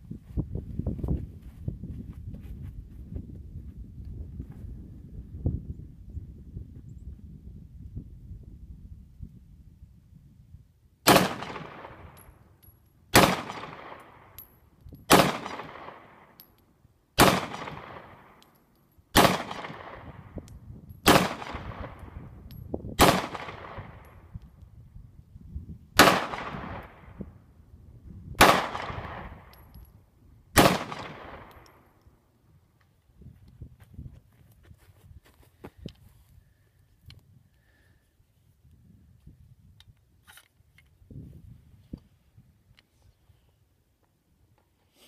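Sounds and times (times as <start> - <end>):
pistol shots with echo: 11.1 - 12.2, 13.1 - 14.4, 15.1 - 16.4, 17.2 - 18.4, 19.1 - 20.3, 21.0 - 22.2, 23.0 - 24.1, 26.0 - 27.2, 28.4 - 29.5, 30.6 - 31.7.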